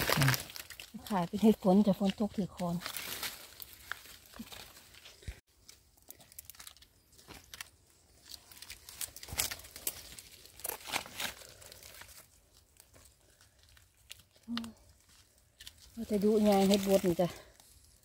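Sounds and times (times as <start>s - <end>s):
rustling of dry forest litter: 0.0s - 18.0s.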